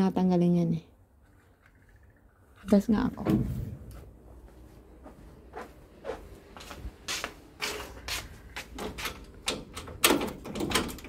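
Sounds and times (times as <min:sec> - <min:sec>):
door latch clacking and rattling: 0:08.8 - 0:11.0
key turning in lock: 0:09.0 - 0:11.0.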